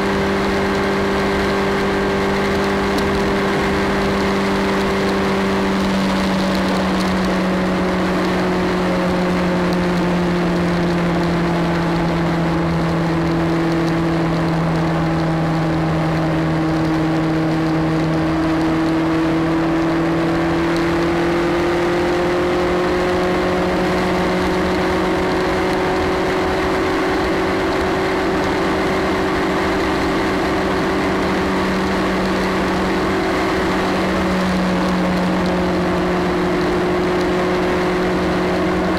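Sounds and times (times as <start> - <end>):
motorcycle engine droning: 0.0 - 38.9
wind and tyre noise: 0.0 - 38.9.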